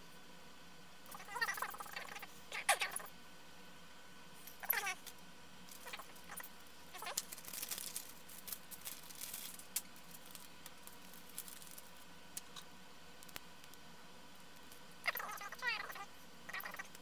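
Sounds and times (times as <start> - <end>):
plastic bags crinkling: 5.7 - 12.6.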